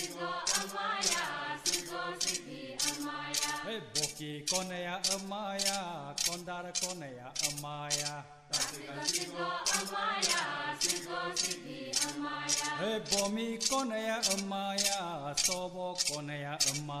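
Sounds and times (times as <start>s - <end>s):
man chanting: 3.7s - 9.1s, 12.6s - 17.0s
metallic jingle struck: 10.8s - 17.0s.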